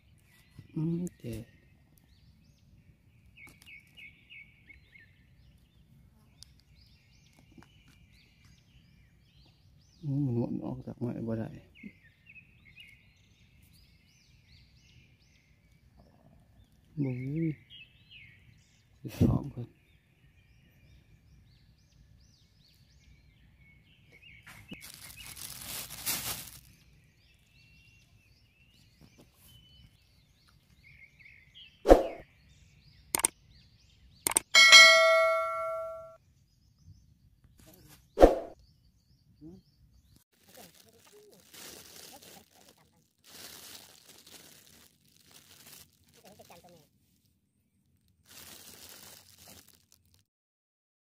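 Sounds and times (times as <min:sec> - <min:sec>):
small birds chirping: 0:00.0 - 0:50.2
plastic bag crinkling: 0:24.7 - 0:26.8, 0:40.4 - 0:46.8, 0:48.1 - 0:50.3
soft clicks: 0:34.3 - 0:34.5.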